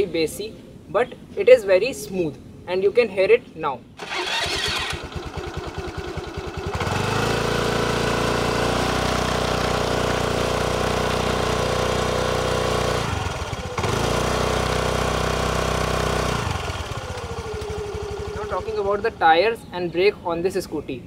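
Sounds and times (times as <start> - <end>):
scooter engine revving: 4.0 - 19.6.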